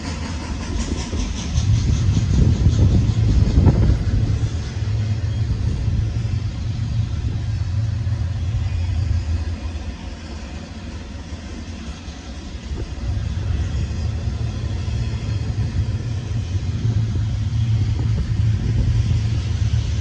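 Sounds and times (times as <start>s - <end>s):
freight train wheels rumbling on rail: 0.0s - 20.0s.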